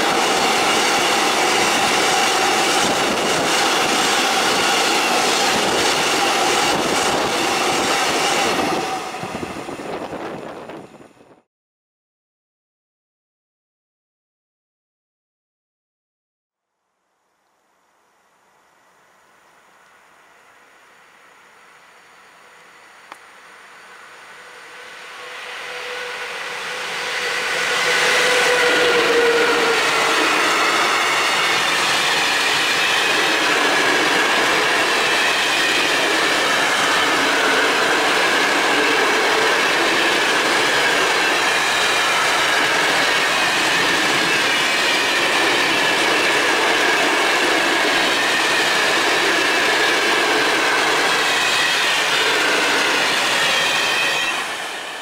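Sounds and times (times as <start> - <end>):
freight train rumbling past: 0.0 - 11.4, 21.2 - 55.0
wheels squealing: 22.1 - 55.0.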